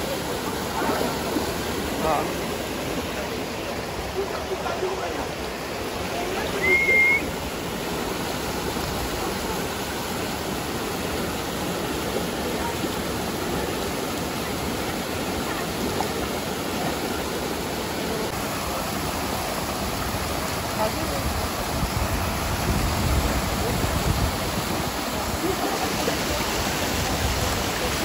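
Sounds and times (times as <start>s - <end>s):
stream and waterfall rushing: 0.0s - 28.0s
brief high whistle: 6.6s - 7.3s.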